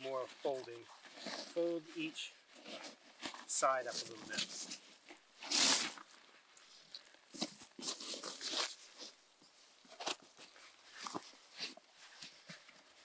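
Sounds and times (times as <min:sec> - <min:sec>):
foam pad scraping rustle: 0:00.0 - 0:06.2
foam pad rubbing and scuffing: 0:05.4 - 0:06.0.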